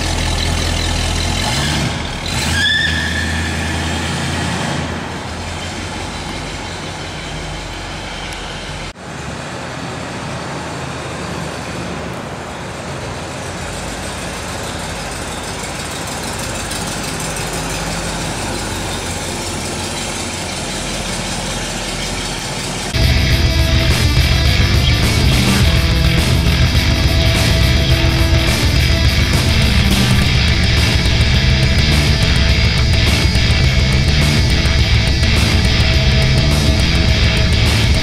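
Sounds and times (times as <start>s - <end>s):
car engine running: 0.0s - 2.6s, 15.4s - 38.0s
brief rising whine: 23.0s - 38.0s.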